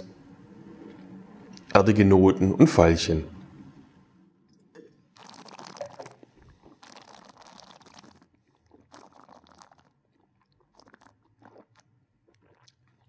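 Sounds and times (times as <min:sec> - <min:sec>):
airy slurping of wine: 0:05.2 - 0:13.0.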